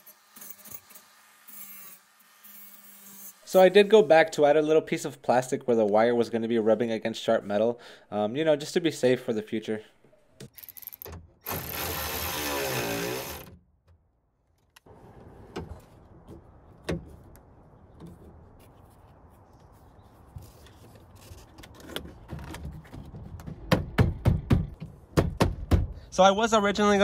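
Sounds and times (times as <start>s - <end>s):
power ratchet running: 10.6s - 13.5s.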